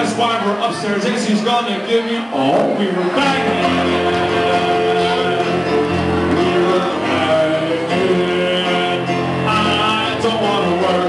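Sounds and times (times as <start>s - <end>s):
live band playing: 0.0s - 11.0s
person singing: 2.3s - 11.0s.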